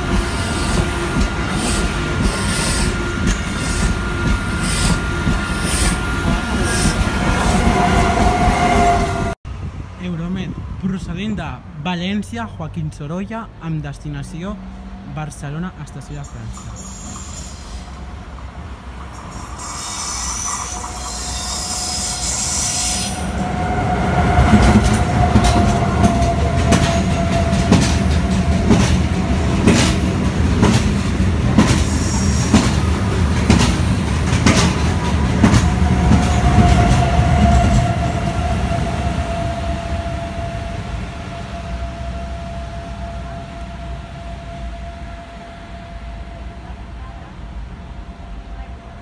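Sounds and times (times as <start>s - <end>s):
train wheels clicking over track: 0.0s - 9.3s, 24.4s - 38.4s
passenger train passing at speed: 0.0s - 49.0s
steady high whine: 37.1s - 49.0s.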